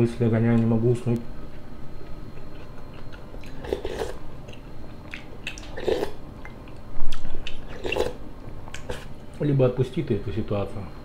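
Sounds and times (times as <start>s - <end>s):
person chewing and slurping soup: 1.5s - 9.2s.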